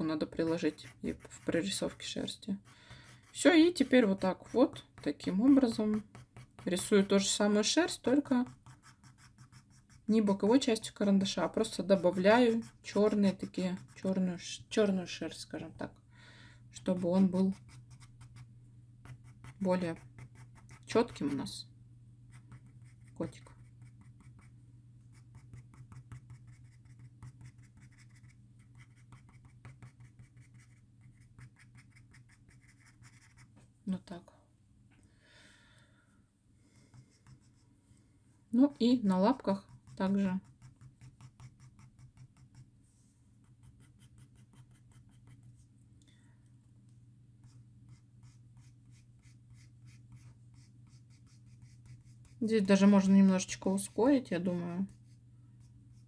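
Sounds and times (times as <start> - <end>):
pencil scratching on paper: 0.0 - 14.3, 16.8 - 21.5, 22.3 - 24.5, 25.1 - 33.5, 36.8 - 37.6, 38.6 - 42.7, 43.4 - 45.6, 47.4 - 54.2
low steady hum: 0.0 - 56.0.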